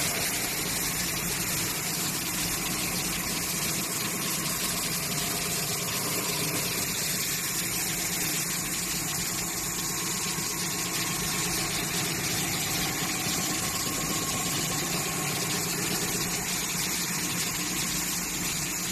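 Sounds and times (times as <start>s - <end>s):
sanding machine running: 9.6s - 18.0s.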